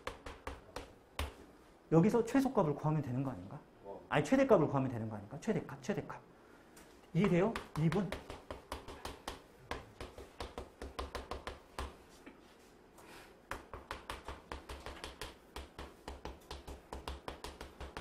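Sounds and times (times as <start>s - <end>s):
chalk tapping on chalkboard: 0.0s - 1.4s, 7.2s - 12.4s, 13.5s - 18.0s.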